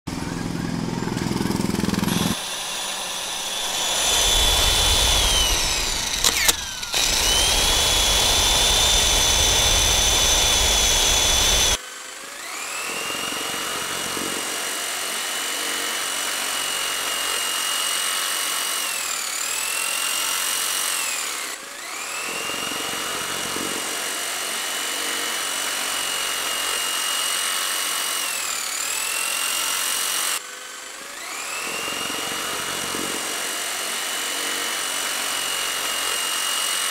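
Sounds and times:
high-pitched machine whine: 0:00.1 - 0:13.9
low rumble: 0:02.1 - 0:11.8.

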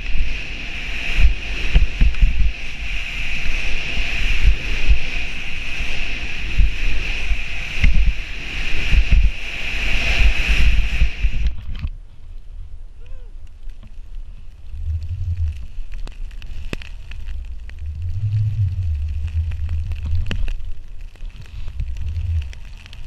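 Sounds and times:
skis rushing through snow: 0:00.0 - 0:11.6, 0:14.2 - 0:23.0
wind buffeting microphone: 0:00.0 - 0:12.0, 0:17.2 - 0:23.0
faint snow hiss: 0:00.0 - 0:23.0
low rumbles: 0:00.0 - 0:23.0.

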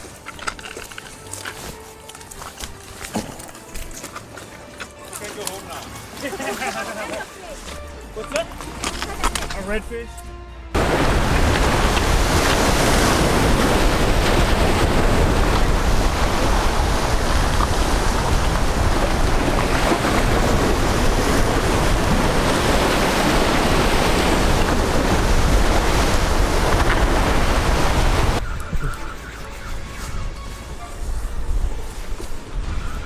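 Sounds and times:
waves washing against jetty: 0:10.8 - 0:28.4
wind buffeting microphone: 0:10.8 - 0:33.0.

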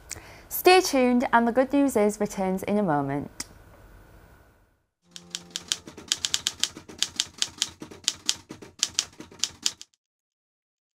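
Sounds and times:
typewriter key strikes: 0:05.1 - 0:09.9.

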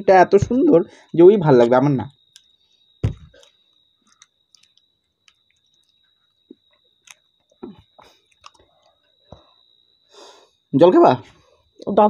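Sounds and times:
short low thump: 0:03.0 - 0:03.4
person chewing with wet mouth clicks: 0:04.1 - 0:06.0, 0:06.6 - 0:09.0.

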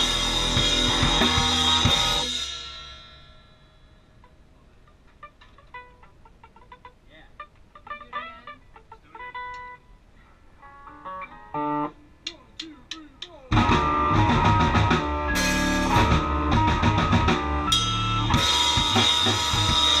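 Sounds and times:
synth-rock band jamming: 0:00.0 - 0:03.1, 0:13.5 - 0:20.0.

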